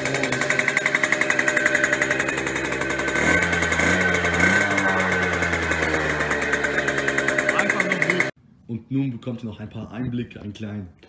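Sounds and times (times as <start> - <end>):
two-stroke moped engine running: 0.0 - 8.4.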